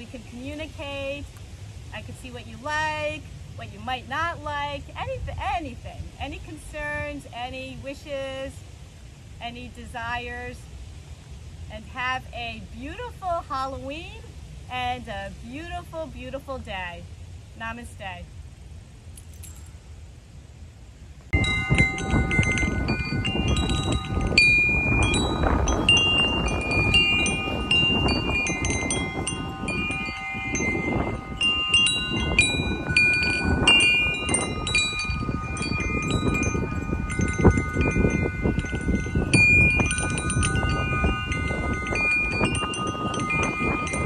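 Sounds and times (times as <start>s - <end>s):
chimes ringing: 21.4s - 44.0s.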